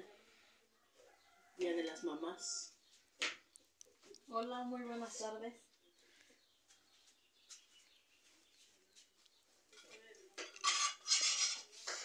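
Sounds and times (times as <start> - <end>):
metal spoon scraping clay bowl: 9.7 - 12.0.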